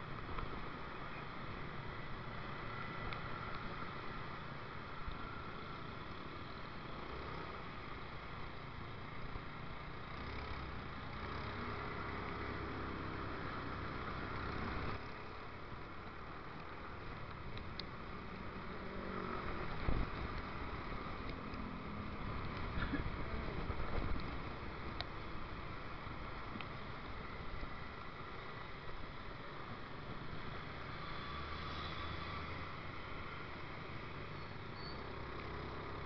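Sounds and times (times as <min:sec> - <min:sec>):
road and wind noise: 0:00.0 - 0:36.0.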